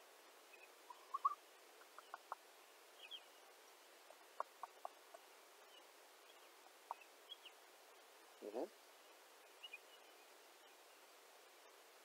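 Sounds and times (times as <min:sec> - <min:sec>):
mockingbird calling: 0:08.4 - 0:08.7.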